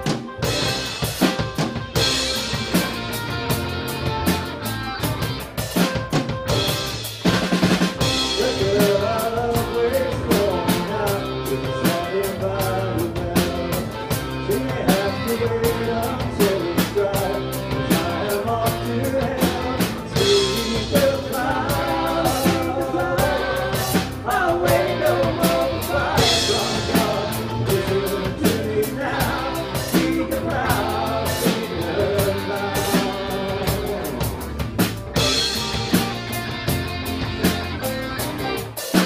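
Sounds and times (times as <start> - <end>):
drum kit beat: 0.0 - 39.0
electric and bass guitars: 0.0 - 39.0
electric mandolin: 2.0 - 7.1, 16.9 - 38.8
sung vocals: 8.2 - 35.4.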